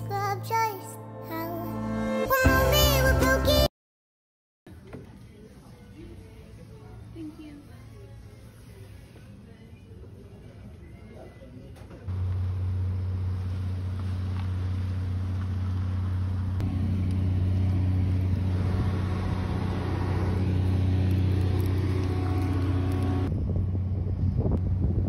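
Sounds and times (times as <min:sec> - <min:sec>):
engine humming: 0:12.1 - 0:25.0
higher steady tone: 0:16.6 - 0:23.3.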